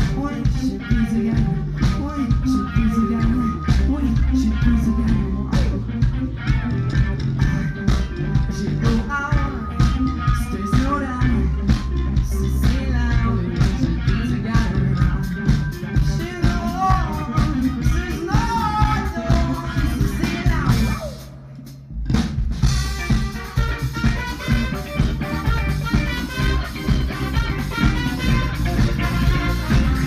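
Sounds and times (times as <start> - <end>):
person singing: 0.0 - 6.4, 7.3 - 21.3
rock band playing live: 0.0 - 30.0.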